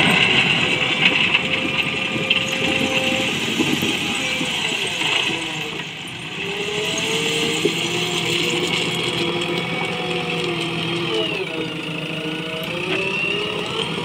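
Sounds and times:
diesel engine working under load: 0:00.0 - 0:14.0
stones scraping: 0:00.1 - 0:09.6.

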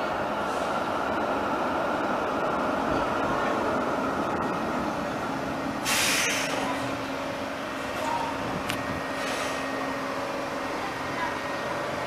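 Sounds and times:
tram running hum and rumble: 0:00.0 - 0:12.0
hiss burst: 0:05.8 - 0:06.6.

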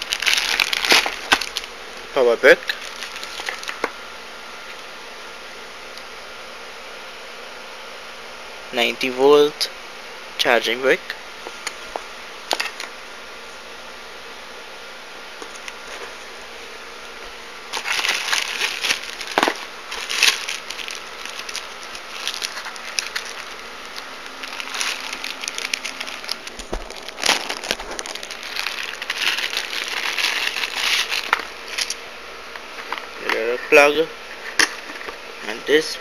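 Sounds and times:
plastic bag crinkling: 0:00.0 - 0:01.7, 0:02.6 - 0:03.9, 0:17.7 - 0:32.0.

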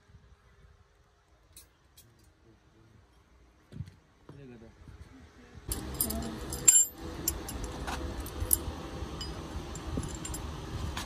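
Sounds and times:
low background noise: 0:00.0 - 0:11.0
metal tools clinking: 0:05.7 - 0:10.5.

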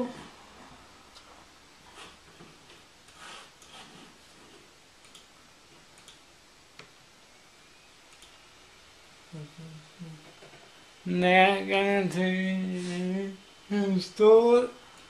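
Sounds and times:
computer mouse clicks: 0:05.0 - 0:05.3, 0:06.0 - 0:06.2, 0:08.1 - 0:08.4.

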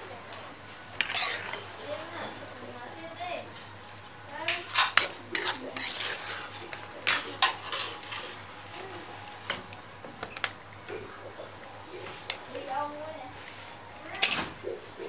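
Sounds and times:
metal spoon scraping steel pan: 0:01.0 - 0:01.6, 0:04.5 - 0:08.4.

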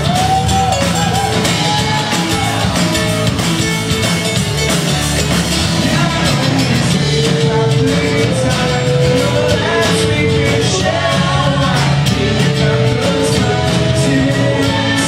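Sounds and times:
live rock band playing: 0:00.0 - 0:15.0
person singing long notes: 0:05.8 - 0:15.0.

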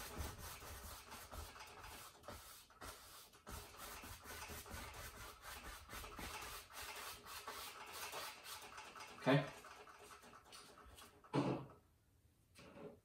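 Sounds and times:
paint brush rubbing on canvas: 0:00.0 - 0:11.1.

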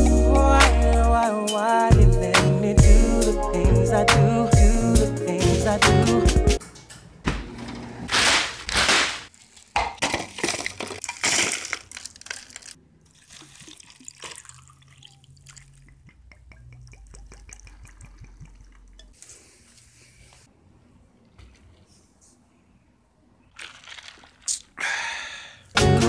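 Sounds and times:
ice crackling in liquid: 0:08.2 - 0:16.0, 0:23.5 - 0:24.8
drink pouring over ice: 0:09.3 - 0:16.1, 0:23.5 - 0:24.8
ice clinking: 0:09.3 - 0:19.2, 0:23.5 - 0:24.7.

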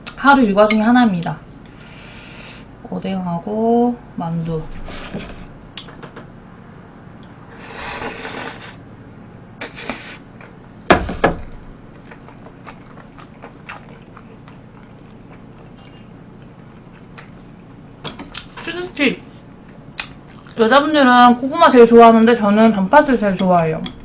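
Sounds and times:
slurping hiss: 0:01.8 - 0:02.7, 0:07.5 - 0:08.8, 0:09.6 - 0:10.3
sharp knock: 0:10.9 - 0:11.5
wet chewing clicks: 0:11.9 - 0:18.5, 0:20.0 - 0:20.6.

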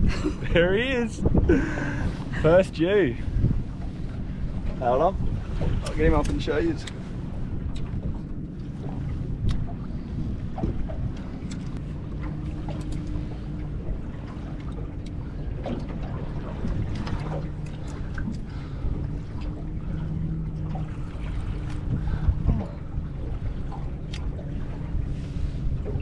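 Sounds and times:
steady low hum: 0:00.0 - 0:26.0
water around boat: 0:00.0 - 0:26.0
wind on microphone: 0:00.0 - 0:26.0.

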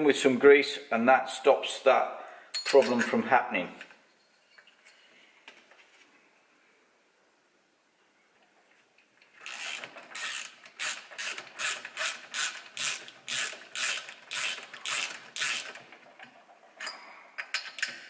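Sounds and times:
socket ratchet clicking: 0:09.5 - 0:15.8.

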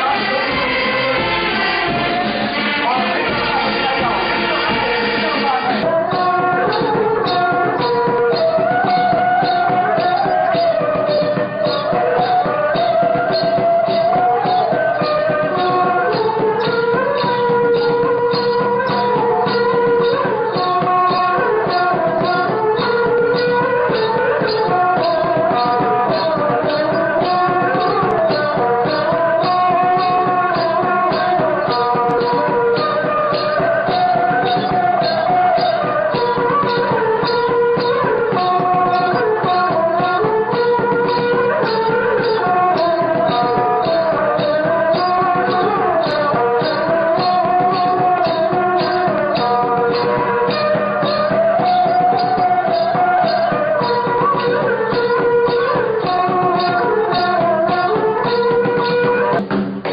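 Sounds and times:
wavering melody: 0:00.0 - 0:59.5
shaken rattle beat: 0:00.0 - 0:59.9.

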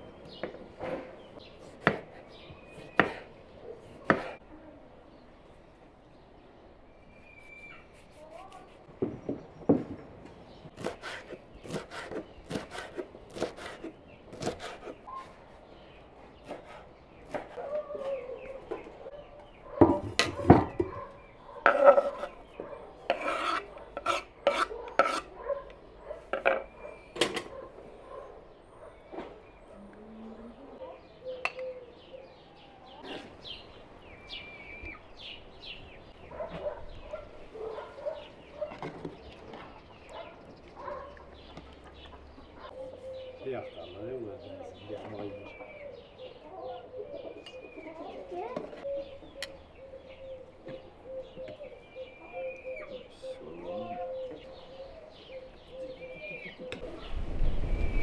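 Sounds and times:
knife chopping on wooden board: 0:01.6 - 0:02.2, 0:02.8 - 0:03.3, 0:03.9 - 0:04.4, 0:10.8 - 0:15.3, 0:16.4 - 0:17.6, 0:23.1 - 0:25.3.

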